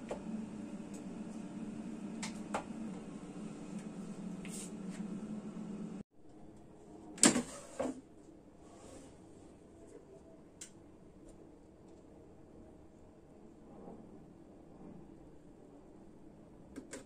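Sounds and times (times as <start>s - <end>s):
steady low hum: 0.0s - 6.0s.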